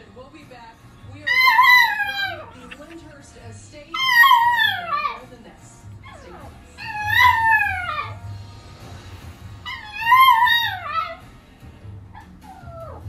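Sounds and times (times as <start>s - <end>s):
television music: 0.0s - 13.0s
puppy howling and crying: 1.2s - 3.0s, 3.9s - 5.2s, 6.0s - 8.2s, 9.6s - 11.3s, 12.1s - 13.0s.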